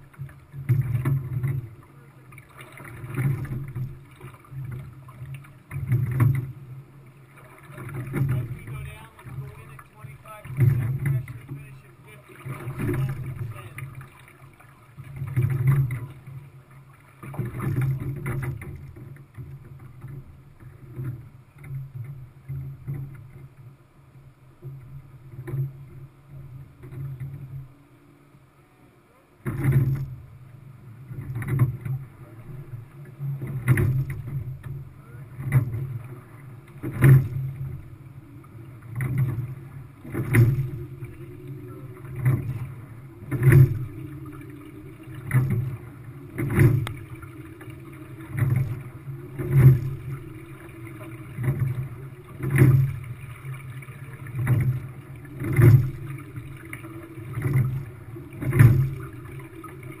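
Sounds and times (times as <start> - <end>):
water rushing along hull: 0.0 - 60.0.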